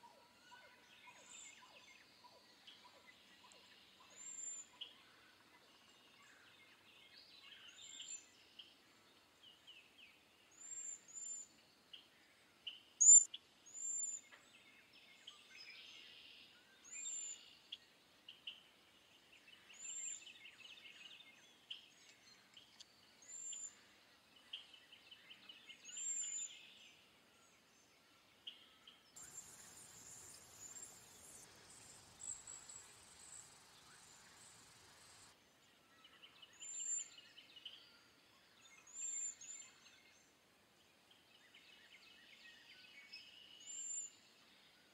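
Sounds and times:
high thin whistled bird calls: 13.0 - 14.2, 29.2 - 35.3
lower chattering bird notes: 29.2 - 35.3
steady hiss: 29.2 - 35.3.

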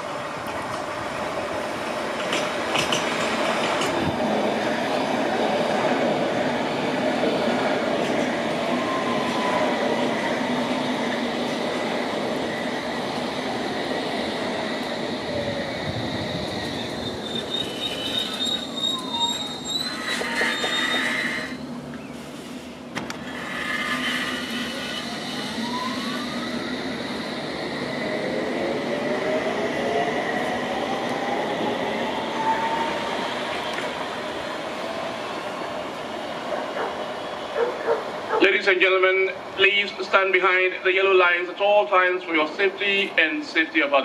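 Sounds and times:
wheels squealing: 15.7 - 22.6, 23.2 - 26.8.

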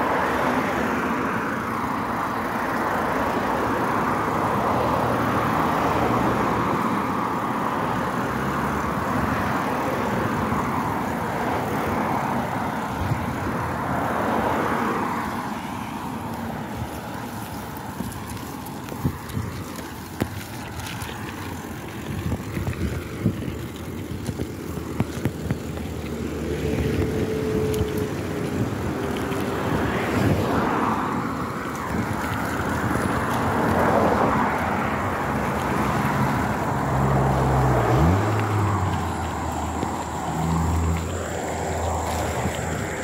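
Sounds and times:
cars passing: 0.0 - 43.0
bike clattering over bumpy grass: 16.7 - 30.7.

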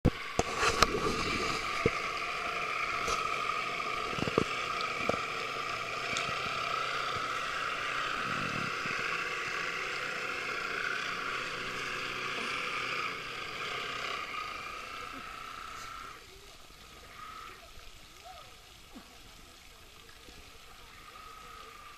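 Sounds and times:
electric motor whine: 0.1 - 17.6.

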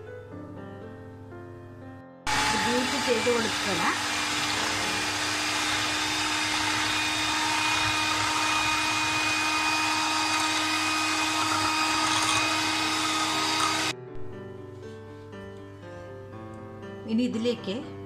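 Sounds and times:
electric hand mixer whipping cream: 2.3 - 14.0.

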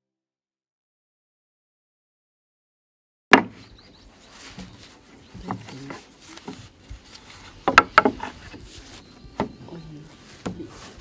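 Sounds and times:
knocks and taps on wood: 7.6 - 8.6, 9.4 - 9.6.

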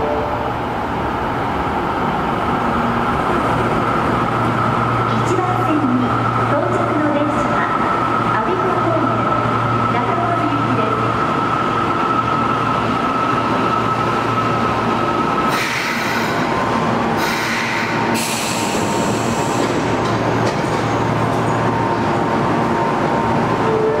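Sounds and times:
subway train high whine: 0.0 - 24.0
train air hiss bursts: 15.5 - 16.5, 17.2 - 19.8.

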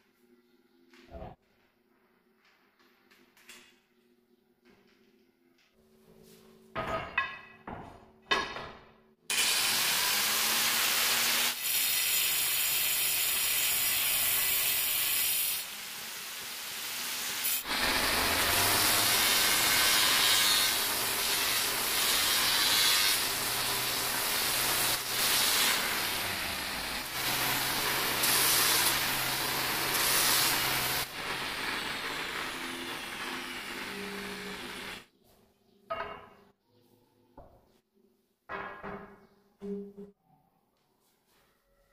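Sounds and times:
angle grinder cutting stone: 9.3 - 35.1.

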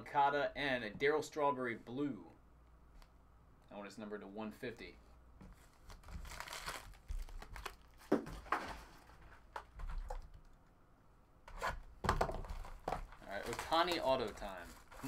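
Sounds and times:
plastic wrappers crinkling: 5.6 - 8.5, 12.4 - 15.0.

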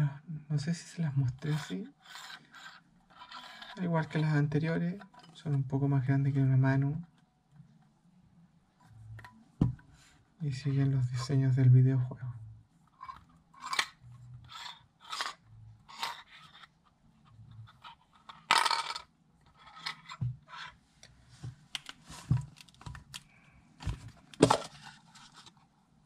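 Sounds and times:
tin scraping: 1.3 - 4.2, 12.9 - 16.7.

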